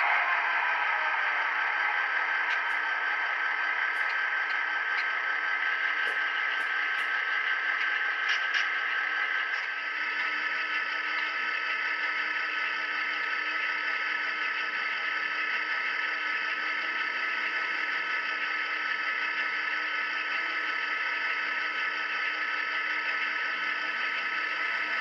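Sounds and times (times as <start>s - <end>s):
diesel idle through small speaker: 0.7s - 25.0s.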